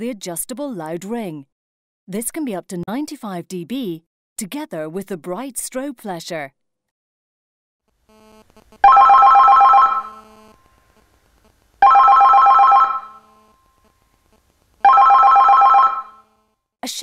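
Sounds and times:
warbling electronic telephone ring: 8.8s - 10.2s, 11.8s - 13.6s, 14.9s - 16.3s.

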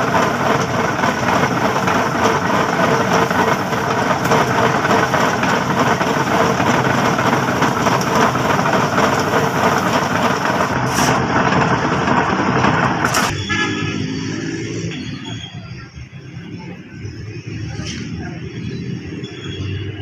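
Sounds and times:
steel mould rumbling and rattling: 0.0s - 13.3s.

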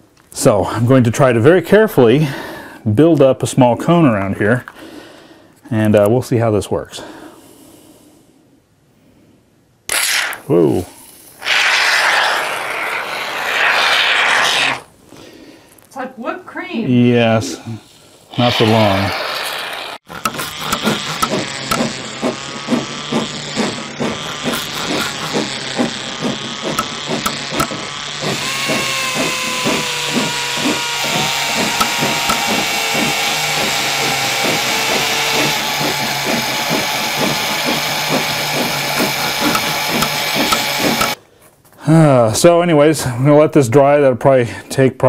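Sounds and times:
power tool whine: 11.4s - 14.9s, 18.4s - 41.2s
rapid regular knocking: 20.1s - 41.2s
steady mechanical hum: 20.1s - 41.2s.

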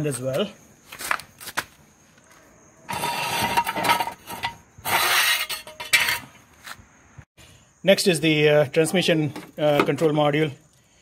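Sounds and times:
metal rattling and scraping: 2.9s - 6.4s.

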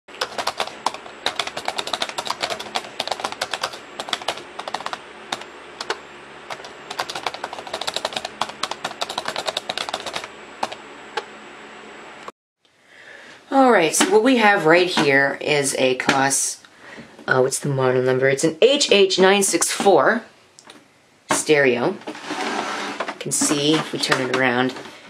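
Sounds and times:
keyboard typing: 0.1s - 11.3s.

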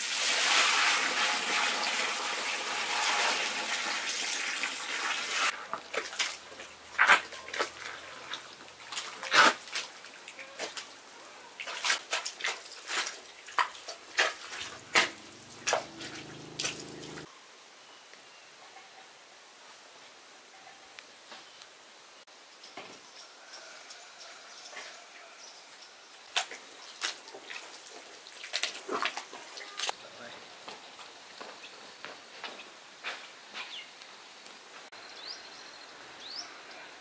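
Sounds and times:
water running: 0.0s - 11.0s, 11.6s - 17.3s.

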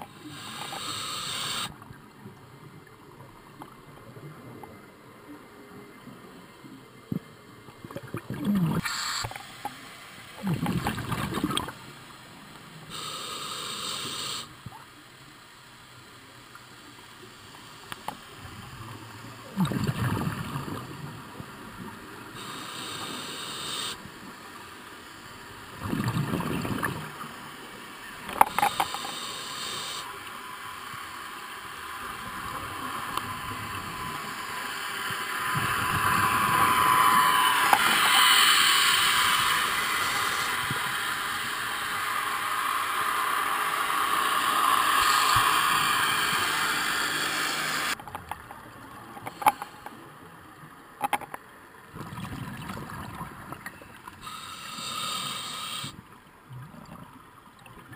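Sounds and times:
regulator inhalation hiss: 0.0s - 1.8s, 8.8s - 10.5s, 12.8s - 14.6s, 22.2s - 25.5s, 28.2s - 48.0s, 54.2s - 56.0s
gurgling exhaled bubbles: 7.8s - 9.1s, 10.4s - 11.8s, 19.5s - 21.0s, 25.8s - 27.2s, 51.9s - 54.9s.

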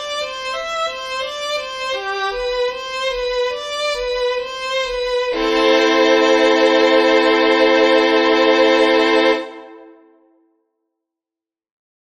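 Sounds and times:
instrumental melody of held notes: 0.0s - 10.1s
full chord: 4.0s - 10.2s.

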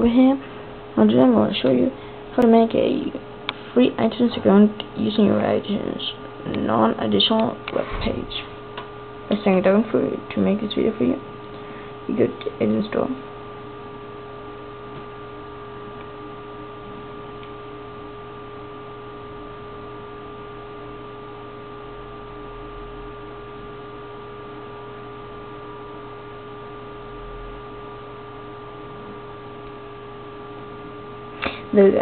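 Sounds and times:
electrical hum: 0.0s - 32.0s
faint whining tones: 0.0s - 32.0s.

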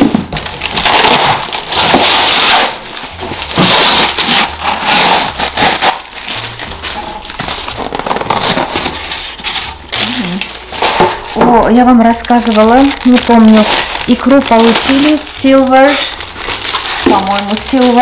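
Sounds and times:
packaging crinkling and rustling: 0.0s - 18.0s.

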